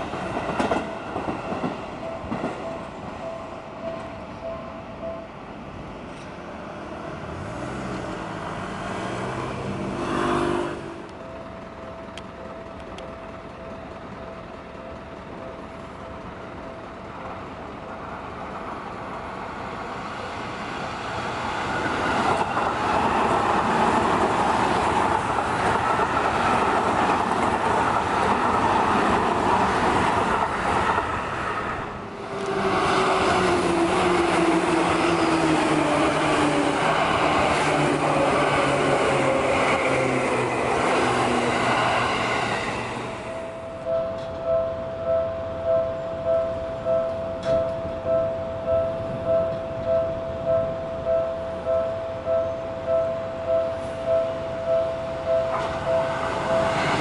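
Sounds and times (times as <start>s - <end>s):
train wheel and motor noise: 0.0s - 57.0s
train motor whine: 31.7s - 44.6s.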